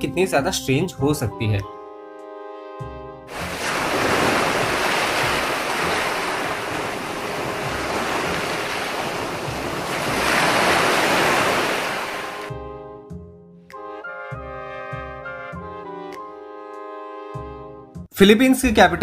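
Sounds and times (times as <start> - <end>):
ocean waves breaking on rocks: 3.3 - 12.5.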